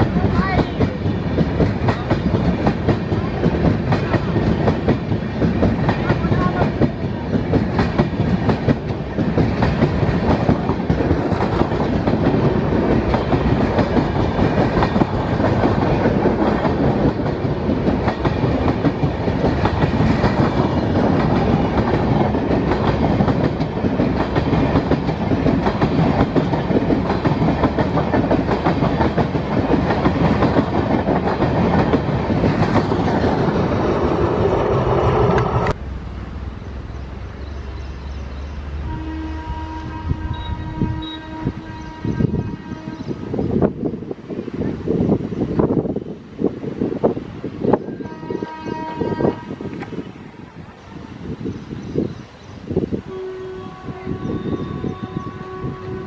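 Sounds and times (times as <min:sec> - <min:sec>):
train wheels clattering on rails: 0:00.0 - 0:35.8.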